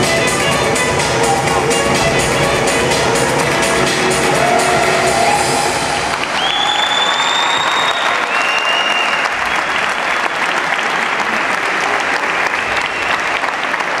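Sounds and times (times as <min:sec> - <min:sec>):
high held tones: 0:00.0 - 0:07.9
audience applauding: 0:03.9 - 0:14.0.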